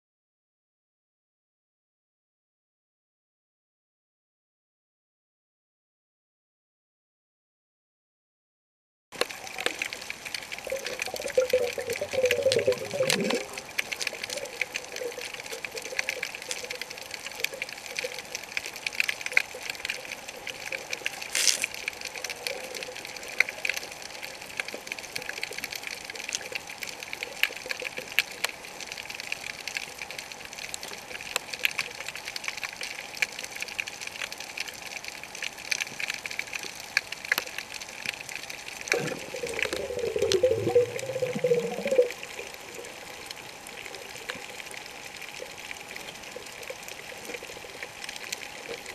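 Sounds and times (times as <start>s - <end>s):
underwater wavering gurgle: 9.2s - 33.8s, 35.4s - 48.9s
snapping shrimp crackling: 21.0s - 22.0s.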